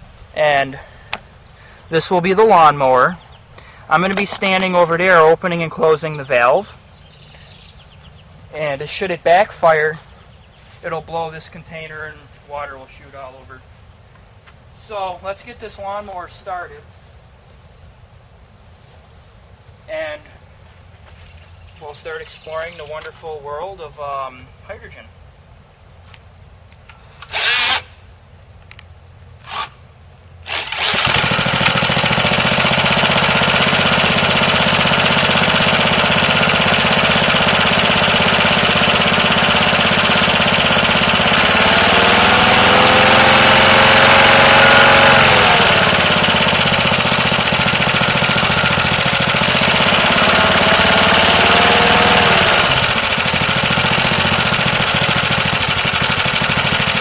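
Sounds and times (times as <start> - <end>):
lawnmower engine running: 0.0 - 9.8, 30.3 - 57.0
cordless drill spinning: 27.2 - 27.9, 29.4 - 29.8, 30.4 - 44.1, 44.9 - 57.0.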